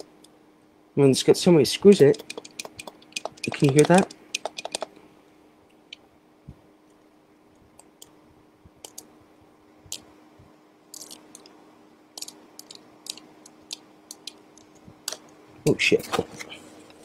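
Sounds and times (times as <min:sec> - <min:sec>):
faint electrical hum: 0:00.0 - 0:17.0
plastic toy clicks and taps: 0:01.9 - 0:04.9.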